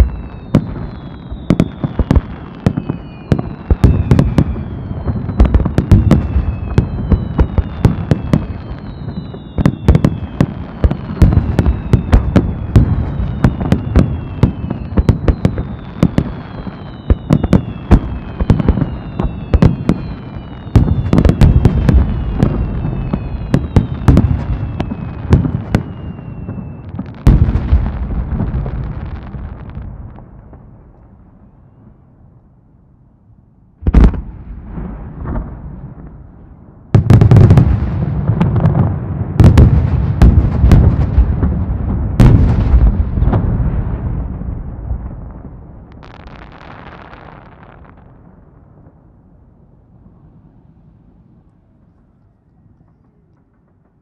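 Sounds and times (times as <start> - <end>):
fireworks whistles falling in pitch: 0.0 - 29.8, 46.0 - 48.2
fireworks bangs and booms: 0.0 - 32.2, 33.8 - 52.0.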